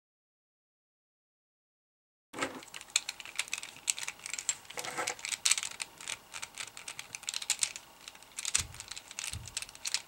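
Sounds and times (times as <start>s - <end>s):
plastic puzzle pieces clicking: 2.4s - 10.0s.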